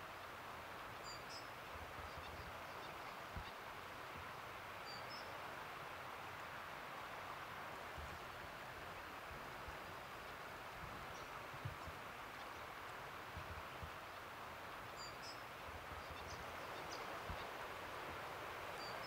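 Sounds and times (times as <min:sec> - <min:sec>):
creek rapids rushing: 0:11.4 - 0:19.0.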